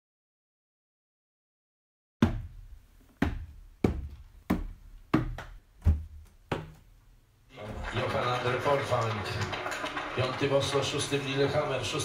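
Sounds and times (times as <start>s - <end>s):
footsteps on wooden stairs: 3.1s - 6.9s.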